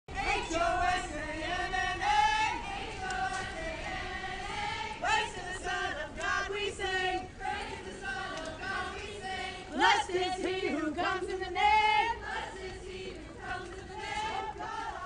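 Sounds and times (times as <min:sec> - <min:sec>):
choir singing: 0:00.1 - 0:15.0.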